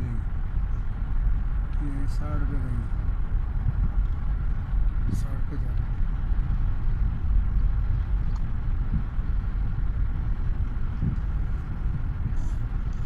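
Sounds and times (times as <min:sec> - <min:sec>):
tyre and wind noise in car cabin: 0:00.0 - 0:13.0.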